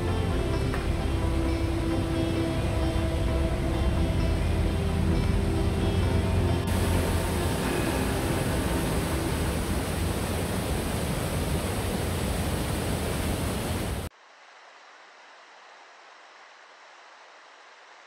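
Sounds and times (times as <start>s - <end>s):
faint steady hiss: 0.0s - 18.0s
powerful water jet rushing: 6.3s - 14.1s.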